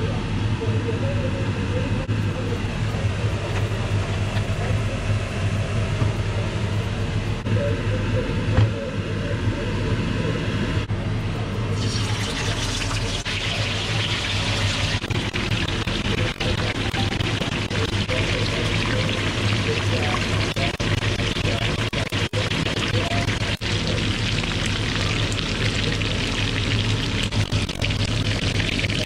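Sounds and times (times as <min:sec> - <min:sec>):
steady low hum: 0:00.0 - 0:29.0
hot oil sizzling: 0:11.7 - 0:29.0
oil pouring into a wok: 0:11.8 - 0:14.9.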